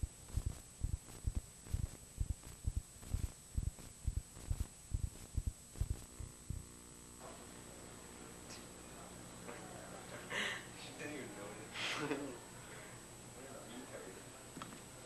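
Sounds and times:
low thumps: 0:00.0 - 0:06.7
thin high whine: 0:00.0 - 0:14.4
faint tape hiss: 0:00.0 - 0:15.0
steady electrical hum: 0:00.0 - 0:15.0.

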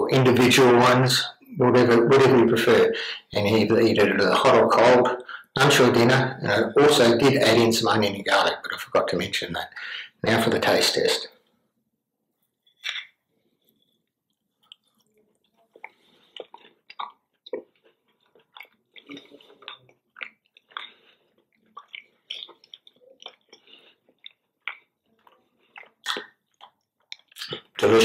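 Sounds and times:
person chewing crunchy pastry: 0:12.4 - 0:27.8.

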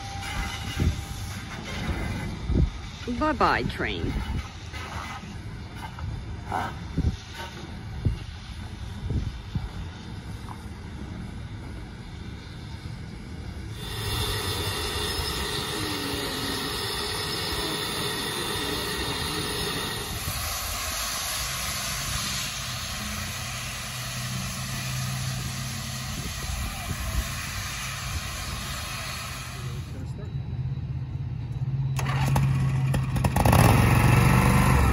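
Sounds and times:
steam locomotive high tones: 0:00.0 - 0:32.7
steady low hum: 0:05.2 - 0:32.0.

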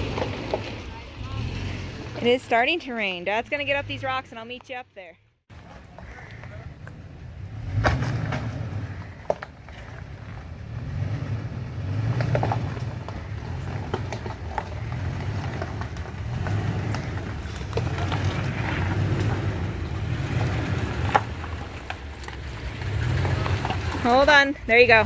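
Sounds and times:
truck engine rumbling: 0:00.0 - 0:25.0
rock cracking under tyres: 0:05.6 - 0:25.0.

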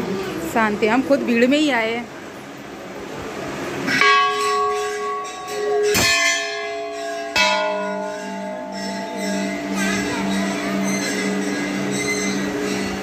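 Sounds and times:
temple bells ringing: 0:03.9 - 0:13.0.

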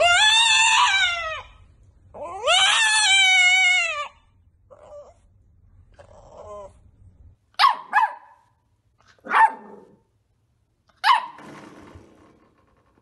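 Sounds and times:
small dog barking: 0:07.5 - 0:08.5, 0:09.1 - 0:10.0, 0:11.0 - 0:11.4.

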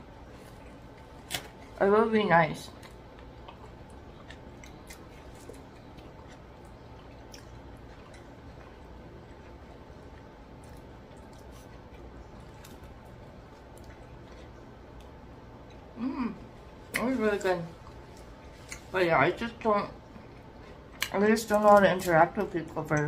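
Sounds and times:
bread crackling: 0:00.0 - 0:15.2
soft chewing and mouth clicks: 0:02.7 - 0:19.0, 0:19.6 - 0:23.0.

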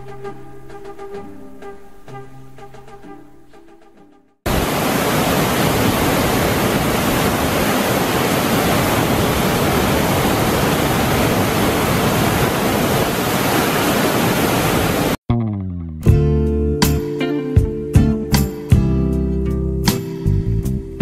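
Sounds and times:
water rushing through weir: 0:04.5 - 0:15.2.

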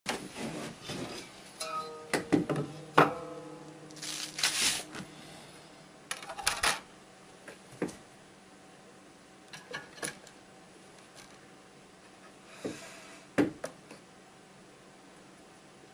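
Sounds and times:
papery rustle of wax sheet: 0:04.0 - 0:04.9.

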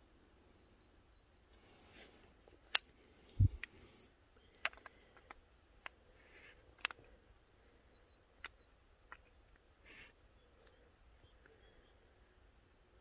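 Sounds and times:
metal caliper clinking on metal: 0:02.5 - 0:03.0.

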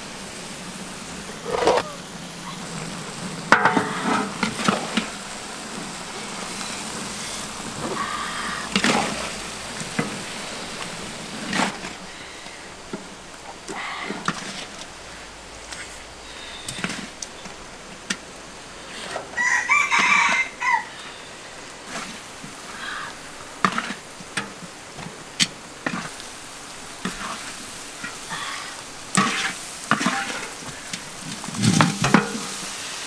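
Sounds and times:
fish sizzling in oil: 0:00.0 - 0:33.0
metal spatula scraping a wok: 0:01.3 - 0:01.9, 0:23.3 - 0:24.6, 0:29.1 - 0:30.6.

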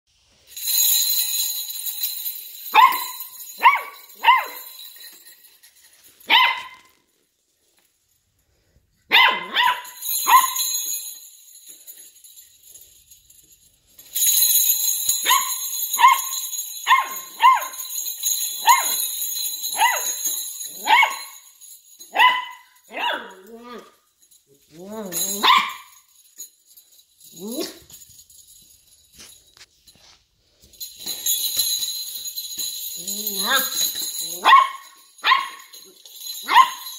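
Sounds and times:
strap of small bells jangling: 0:00.2 - 0:09.0, 0:09.6 - 0:36.9
puppy yipping: 0:09.1 - 0:10.6.

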